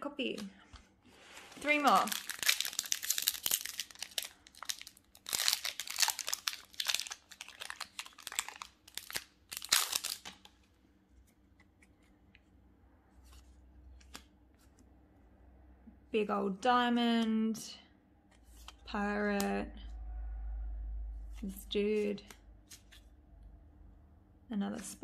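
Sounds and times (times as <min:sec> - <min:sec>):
foil wrapper tearing and crinkling: 0:01.5 - 0:10.5.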